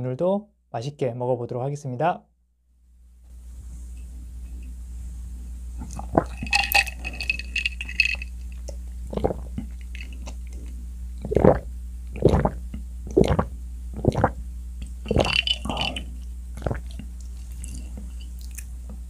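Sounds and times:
slurping through a straw: 5.8s - 8.3s, 9.1s - 14.4s, 15.0s - 18.6s
swallowing gulps: 5.8s - 18.7s.

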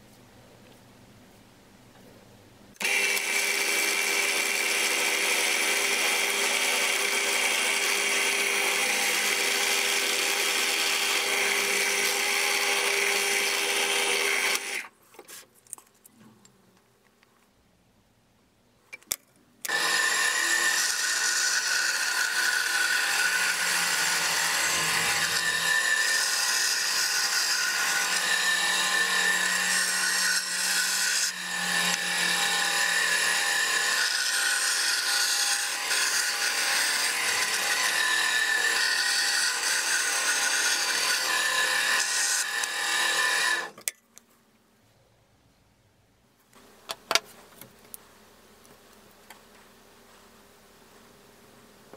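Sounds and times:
bandsaw cutting with steady whine: 2.8s - 14.9s, 19.7s - 43.8s.

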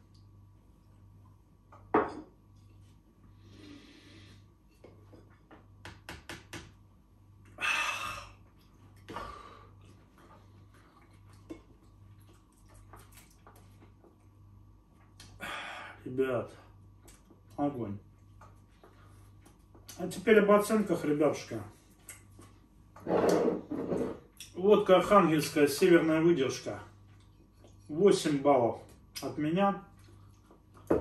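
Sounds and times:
glassware and dishes clinking: 2.0s - 2.4s
breathy exhales: 7.6s - 8.4s, 15.4s - 16.0s.

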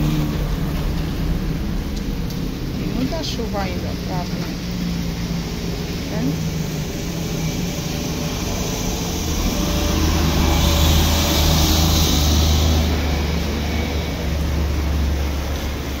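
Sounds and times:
low engine rumble: 0.0s - 16.0s
tyres hissing on wet street: 0.0s - 16.0s
motorcycle riding past: 5.5s - 16.0s.

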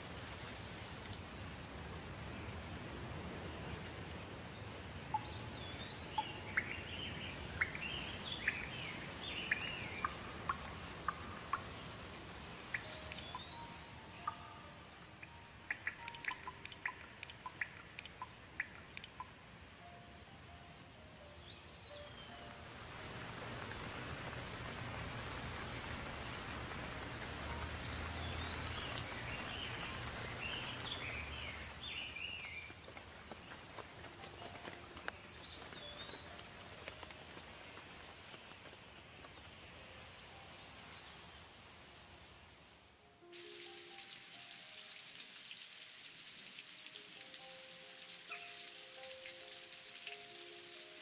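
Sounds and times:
steady rain falling: 0.0s - 51.0s
bird chirping: 5.1s - 11.7s, 12.6s - 19.3s, 27.5s - 32.7s, 34.4s - 37.2s
soft sustained music notes: 5.1s - 32.6s
heavy rain splashing: 22.6s - 38.7s, 43.4s - 51.0s.

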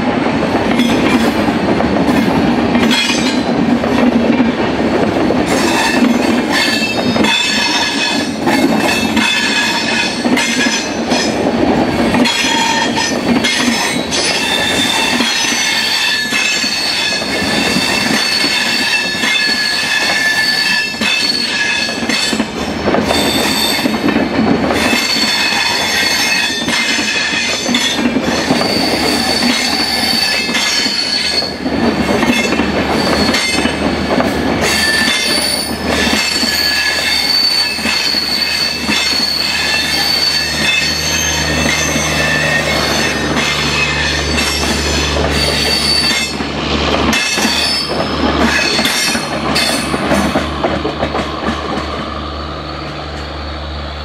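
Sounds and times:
wheels rumbling on rails: 0.0s - 54.0s
train wheels squealing: 5.5s - 11.3s, 12.2s - 22.4s, 23.0s - 24.0s, 24.8s - 31.7s, 32.3s - 33.8s, 34.6s - 46.4s, 47.1s - 50.4s, 51.7s - 54.0s.

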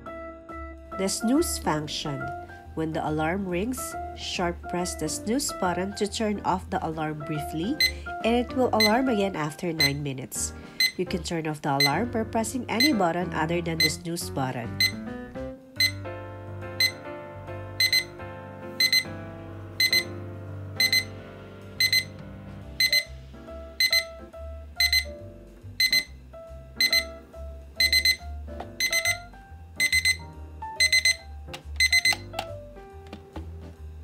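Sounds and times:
background music: 0.0s - 34.0s
alarm clock beeping: 7.7s - 9.2s, 9.8s - 10.1s, 10.8s - 11.2s, 11.8s - 12.1s, 12.7s - 13.0s, 13.8s - 14.0s, 14.8s - 15.1s, 15.8s - 16.0s, 16.8s - 17.0s, 17.8s - 18.2s, 18.8s - 19.2s, 19.8s - 20.2s, 20.8s - 21.2s, 21.8s - 22.2s, 22.8s - 23.2s, 23.8s - 25.2s, 25.8s - 26.2s, 26.8s - 27.2s, 27.8s - 32.4s.

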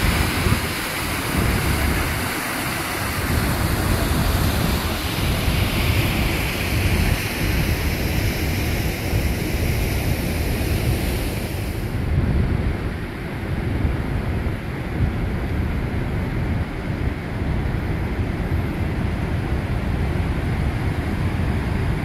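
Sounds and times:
river water rushing: 0.0s - 12.0s
wind buffeting microphone: 0.0s - 22.0s.

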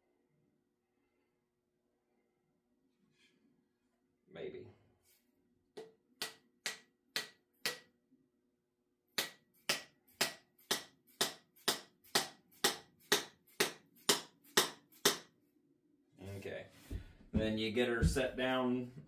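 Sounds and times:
mallet striking wooden wedge: 5.8s - 7.9s, 9.2s - 15.3s.

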